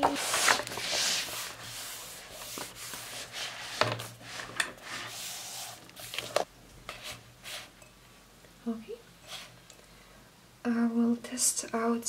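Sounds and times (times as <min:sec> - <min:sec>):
hand rubbing paper: 0:00.1 - 0:07.7.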